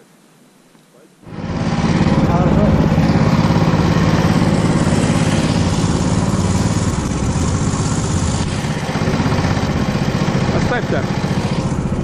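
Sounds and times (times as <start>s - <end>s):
buggy engine running: 1.2s - 12.0s.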